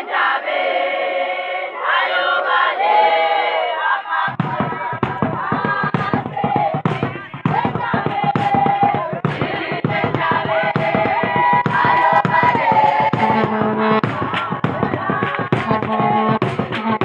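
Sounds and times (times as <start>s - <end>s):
women singing together: 0.0s - 17.0s
rapid thudding beat: 4.3s - 17.0s.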